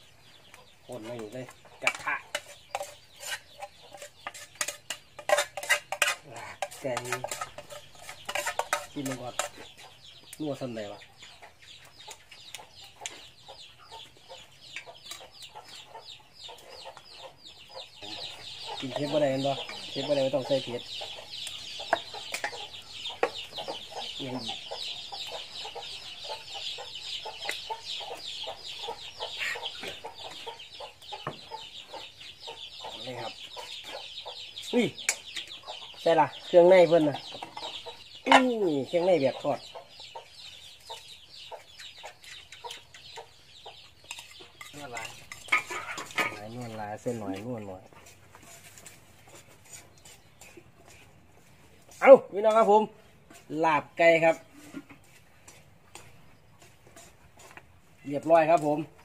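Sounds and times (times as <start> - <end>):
chicken clucking: 0.0 - 59.0
spoon scraping a metal pot: 1.8 - 9.7, 55.4 - 57.6.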